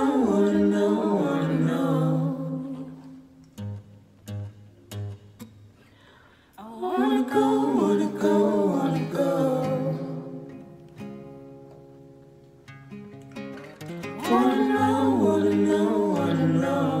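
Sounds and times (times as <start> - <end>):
small choir singing: 0.0 - 3.3, 6.6 - 10.6, 14.2 - 17.0
acoustic guitar: 0.0 - 17.0.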